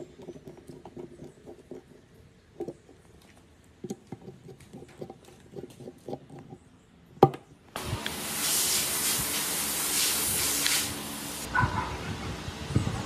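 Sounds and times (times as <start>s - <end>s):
loud steady hiss: 7.7s - 11.5s.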